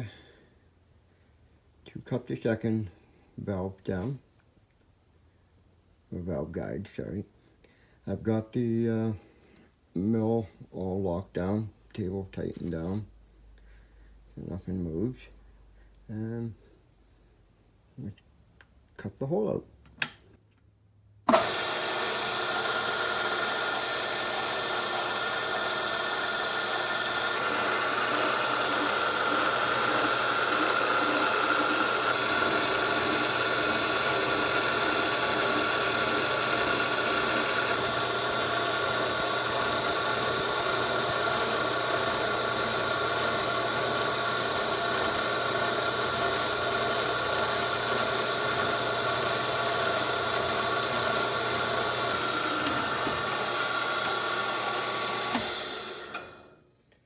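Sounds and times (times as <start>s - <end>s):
milling machine hum and whine: 21.3s - 56.3s.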